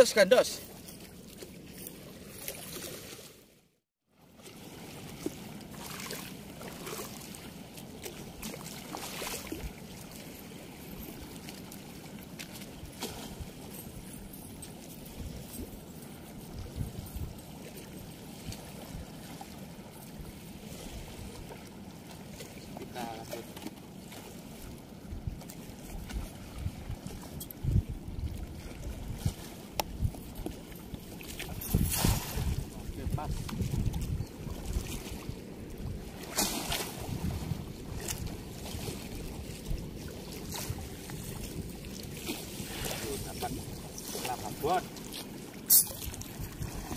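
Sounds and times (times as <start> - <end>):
flowing river water: 0.0 - 46.9
wind rumbling on microphone: 12.8 - 17.5, 24.6 - 45.2, 45.8 - 46.9
net splashing through water: 36.2 - 37.6.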